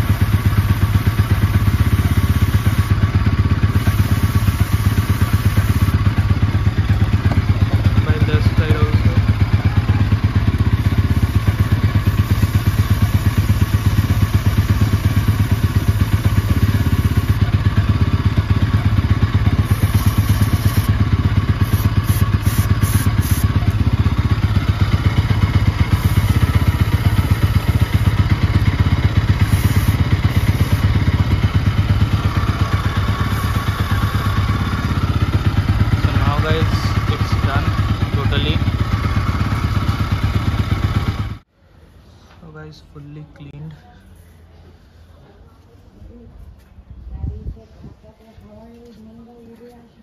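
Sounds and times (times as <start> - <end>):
aerosol spray hisses: 0.0 - 3.0, 3.6 - 6.0, 11.1 - 17.4, 19.6 - 21.0, 21.6 - 23.6, 25.9 - 28.2, 29.2 - 31.0, 33.0 - 34.2
motorcycle engine running: 0.0 - 41.5.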